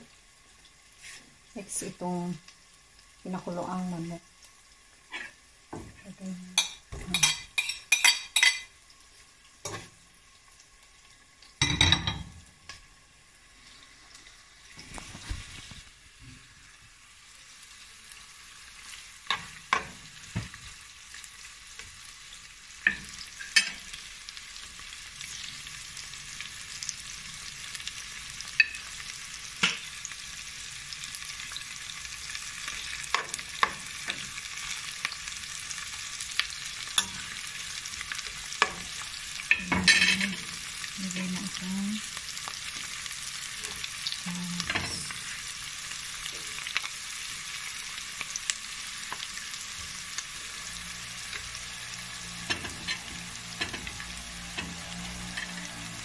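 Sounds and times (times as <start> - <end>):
chicken sizzling in a pan: 0.0 - 56.0
metal spoon stirring in a pan: 6.6 - 8.7, 9.6 - 9.9, 36.9 - 40.6, 52.3 - 56.0.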